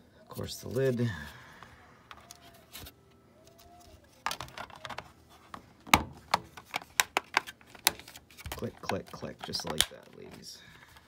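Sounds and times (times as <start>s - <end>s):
plastic clips snapping into place: 5.9s - 10.2s.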